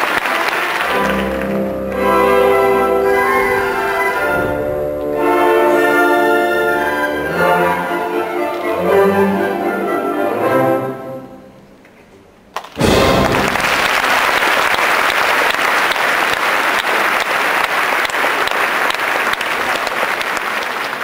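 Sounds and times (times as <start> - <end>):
audience applause: 0.0 - 4.6, 12.6 - 21.0
orchestra playing ballet music: 0.0 - 11.8, 12.8 - 15.2.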